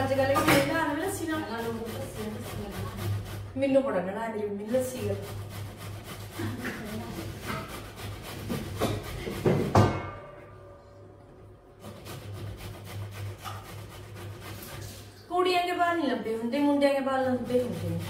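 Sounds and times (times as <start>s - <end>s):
food grating on metal grater: 0.0s - 3.7s, 4.6s - 9.7s, 11.8s - 15.0s, 16.5s - 18.0s.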